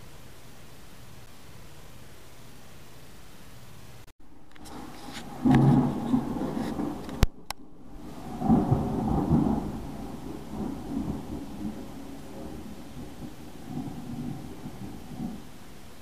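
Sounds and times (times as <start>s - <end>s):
thunder rumbling: 4.3s - 16.0s.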